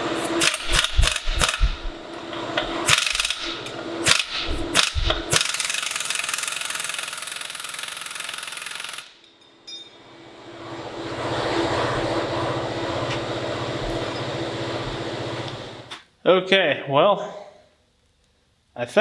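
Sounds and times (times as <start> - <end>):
air impact wrench hammering: 0.0 - 2.0, 2.6 - 9.4
machine hum: 0.0 - 7.6, 9.8 - 16.0.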